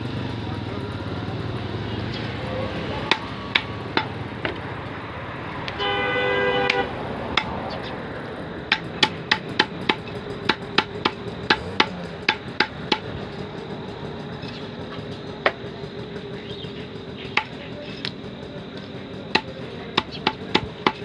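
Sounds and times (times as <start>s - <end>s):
cleaver chopping on wood: 3.0s - 4.7s, 6.6s - 7.8s, 8.6s - 13.2s, 17.3s - 18.1s, 18.8s - 21.0s
horn-like honk: 5.7s - 7.0s.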